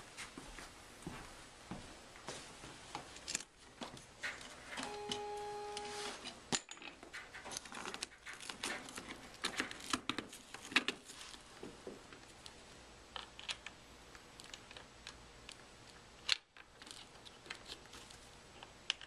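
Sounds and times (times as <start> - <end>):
short steady tone: 4.8 - 6.1.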